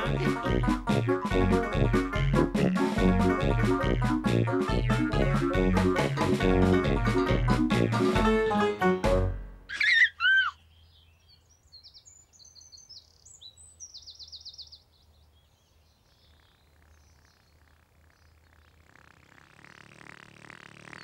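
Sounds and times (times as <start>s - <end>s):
baby giggling: 9.7s - 10.6s
birds chirping: 9.7s - 21.0s.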